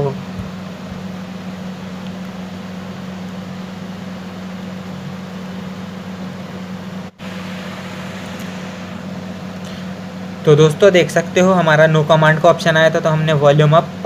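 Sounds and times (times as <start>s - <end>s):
steady background hum: 0.0s - 14.0s
even hiss: 7.2s - 10.2s.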